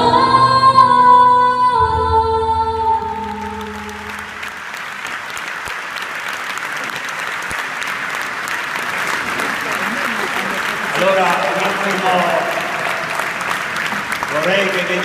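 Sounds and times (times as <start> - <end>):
audience applause: 3.4 - 15.0.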